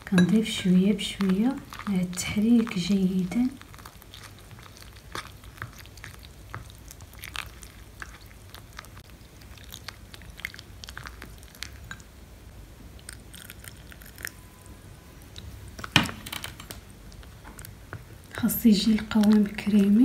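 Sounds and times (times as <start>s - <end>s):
paste squelching: 0.0s - 12.0s.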